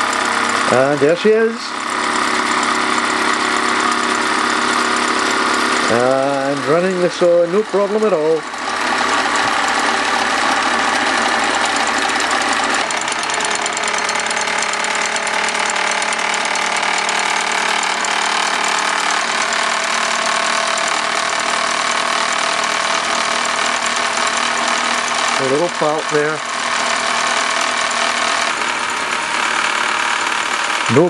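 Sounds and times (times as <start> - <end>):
toy steam engine clattering: 0.0 - 31.0.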